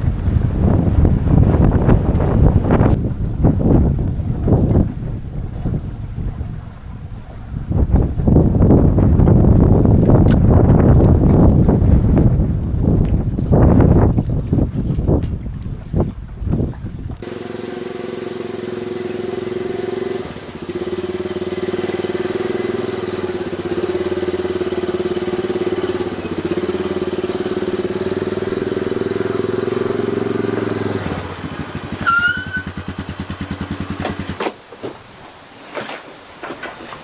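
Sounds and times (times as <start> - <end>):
outboard motor running: 0.0 - 34.5.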